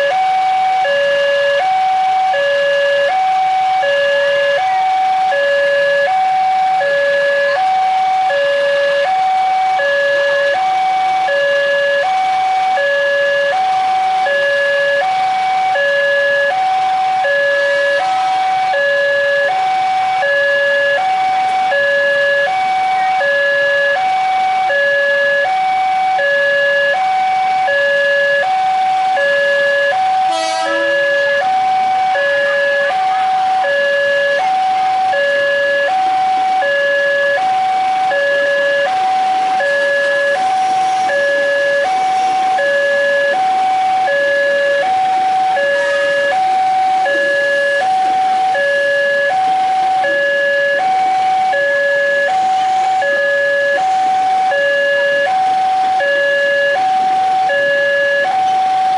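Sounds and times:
two-tone crossing alarm: 0:00.0 - 0:58.9.

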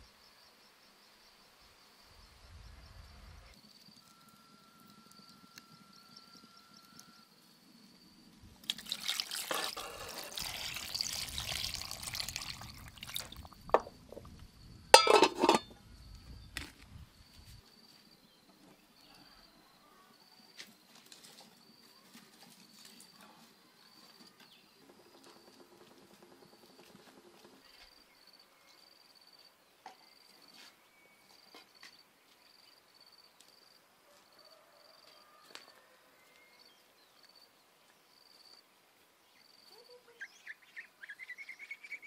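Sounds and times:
insects chirping: 0:00.0 - 0:21.9, 0:27.6 - 0:30.6, 0:31.4 - 0:34.5, 0:36.6 - 0:42.0
water pouring into metal pot: 0:08.6 - 0:14.3, 0:15.0 - 0:15.6
metal lid clattering: 0:15.0 - 0:15.7.

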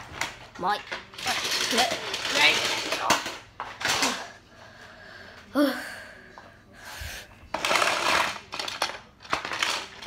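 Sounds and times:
plastic toy pieces clattering: 0:00.1 - 0:04.3, 0:07.5 - 0:10.0.

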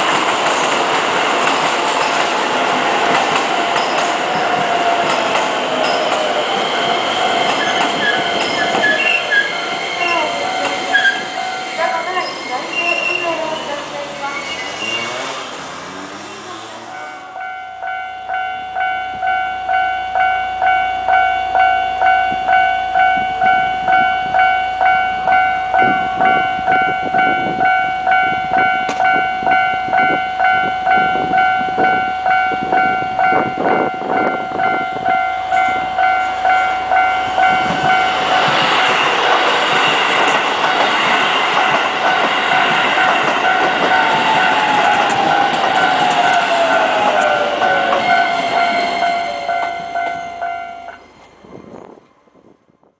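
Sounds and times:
train wheels rumbling on rails: 0:00.0 - 0:52.9
level-crossing alarm ringing: 0:03.6 - 0:14.2, 0:16.9 - 0:51.0
tone falling in pitch: 0:44.4 - 0:51.0.

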